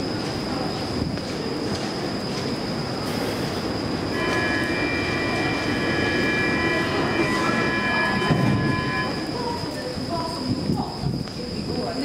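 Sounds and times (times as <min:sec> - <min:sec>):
metro train rumbling: 0:00.0 - 0:12.0
high-pitched squeal: 0:04.1 - 0:09.8.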